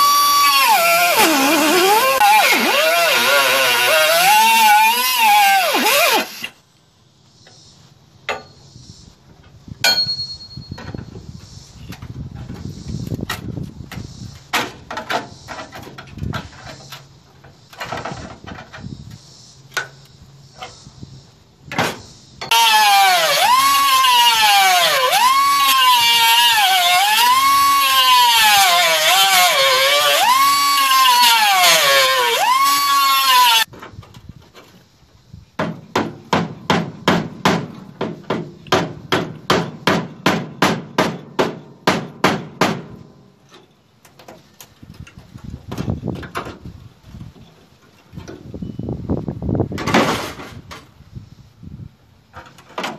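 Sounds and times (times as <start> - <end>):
air-powered cutoff wheel cutting steel: 0.0 - 6.6, 22.5 - 33.7.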